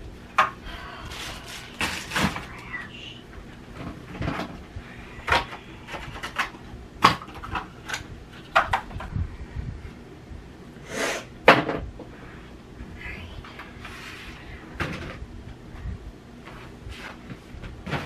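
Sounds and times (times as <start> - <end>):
rustling of household items: 0.0 - 9.2, 13.4 - 18.0.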